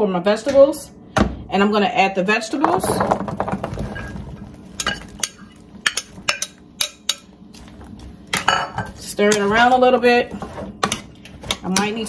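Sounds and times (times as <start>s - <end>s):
vegetables tumbling into pan: 2.6s - 6.5s.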